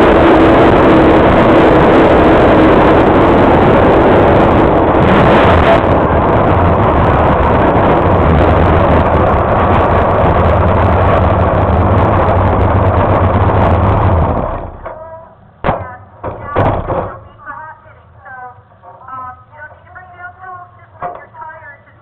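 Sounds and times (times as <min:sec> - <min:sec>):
race car engine droning: 0:00.0 - 0:21.9.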